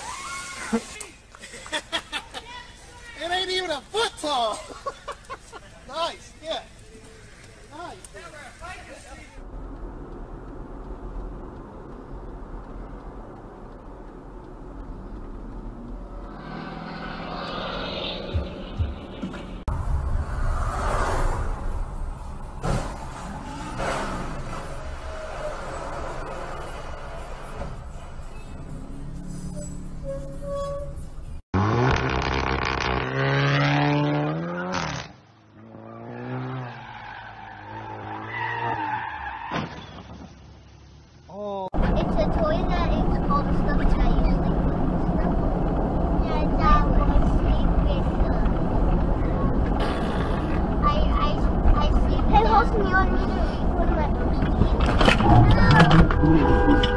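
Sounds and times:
car interior road rumble: 0:02.1 - 0:30.1, 0:41.7 - 0:56.9
car engine revving: 0:09.5 - 0:27.4, 0:31.6 - 0:36.9
tyre squeal: 0:28.2 - 0:33.1, 0:55.1 - 0:56.9.

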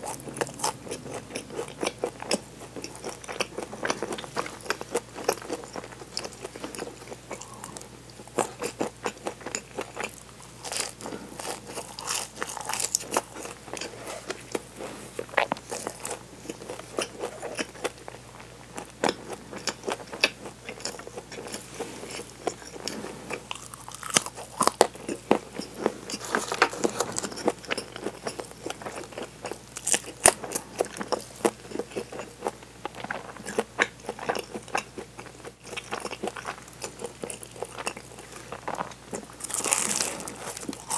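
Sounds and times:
crunchy pastry chewing: 0:00.0 - 0:40.9
soft mouth sounds: 0:07.3 - 0:07.9.

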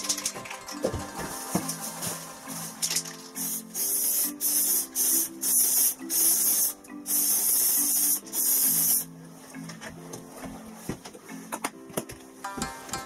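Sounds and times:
spray can hissing: 0:01.3 - 0:09.1.

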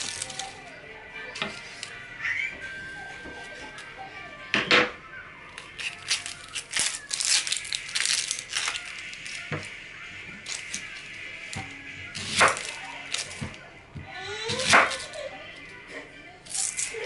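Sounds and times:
onion skin crinkling and tearing: 0:00.0 - 0:00.7, 0:05.5 - 0:09.8, 0:10.4 - 0:13.6, 0:14.4 - 0:15.2, 0:16.4 - 0:17.0
paper sheet rustling: 0:05.7 - 0:09.8.

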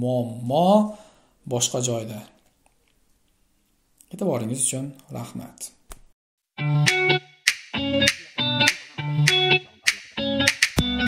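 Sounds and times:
music with short repeating chords: 0:06.6 - 0:11.0.

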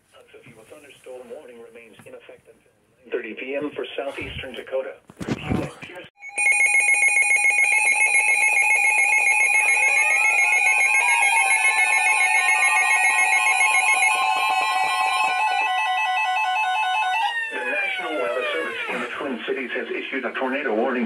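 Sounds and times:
tones sliding up in pitch: 0:06.2 - 0:19.0
pulsing electronic alarm tones: 0:06.2 - 0:19.1.

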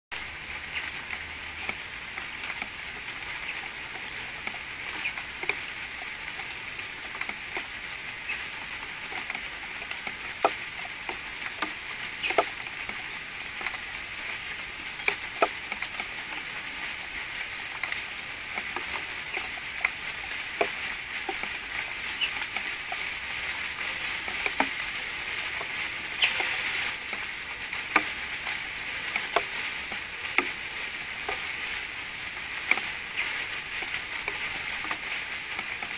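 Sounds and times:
rain hissing: 0:00.1 - 0:35.9
drips tapping: 0:00.2 - 0:35.9.

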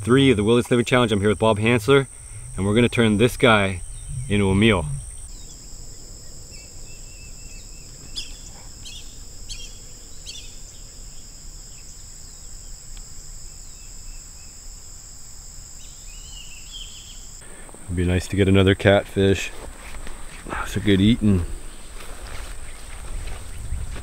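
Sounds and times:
insect chorus droning: 0:00.0 - 0:24.0
bird chirping: 0:03.7 - 0:12.8, 0:15.7 - 0:17.4.

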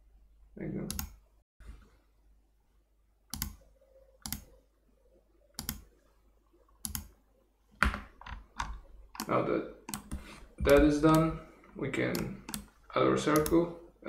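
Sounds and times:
computer mouse clicking: 0:00.9 - 0:01.2, 0:03.3 - 0:03.6, 0:04.2 - 0:04.6, 0:05.5 - 0:05.9, 0:06.8 - 0:07.2, 0:08.6 - 0:11.4, 0:12.1 - 0:13.6.

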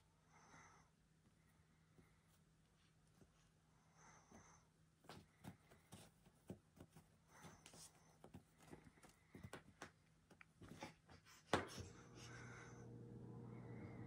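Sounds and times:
low steady hum: 0:00.0 - 0:14.0
cat toy rustles and paw taps: 0:05.0 - 0:11.9.

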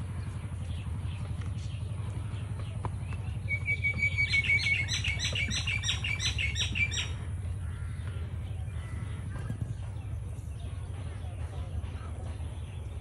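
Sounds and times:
steady low rumble: 0:00.0 - 0:13.0
bird whistling and chirping: 0:03.4 - 0:07.2.

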